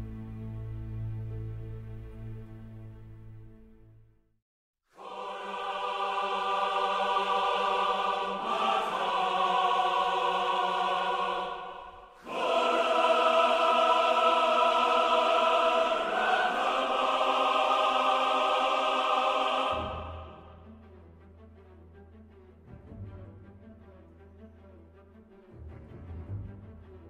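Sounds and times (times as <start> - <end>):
choir singing sustained chords: 4.9 - 21.9
orchestral music: 5.0 - 27.0.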